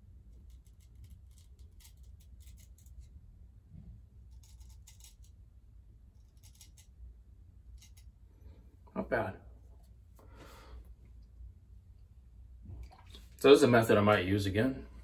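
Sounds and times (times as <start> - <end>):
straight razor scraping stubble: 0.4 - 3.1, 4.3 - 5.4, 6.1 - 7.0, 7.7 - 8.2.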